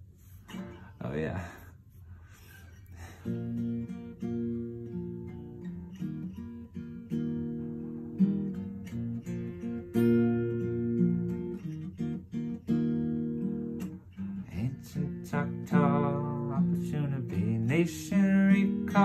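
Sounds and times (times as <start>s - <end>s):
acoustic guitar strumming chords: 3.2s - 19.0s
man singing: 14.5s - 19.0s.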